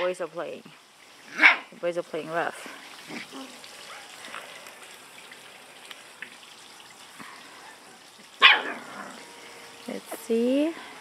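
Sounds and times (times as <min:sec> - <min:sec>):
sharp puppy yelp: 0:01.3 - 0:01.7, 0:08.4 - 0:08.8.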